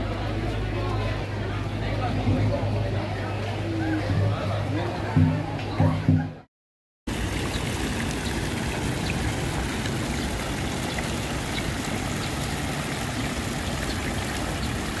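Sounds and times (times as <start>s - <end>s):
water splashing into a pool: 7.1s - 15.0s.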